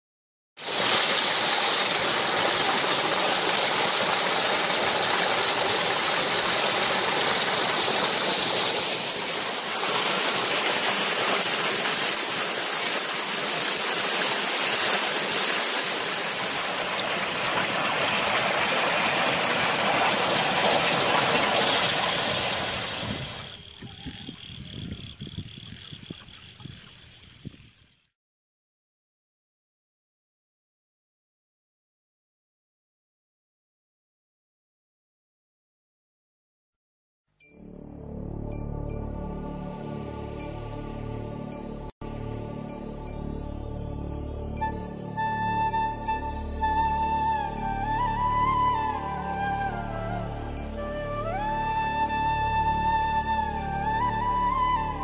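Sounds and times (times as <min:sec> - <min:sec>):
floodwater gushing from pipe: 0:00.6 - 0:23.8
running water: 0:00.6 - 0:28.0.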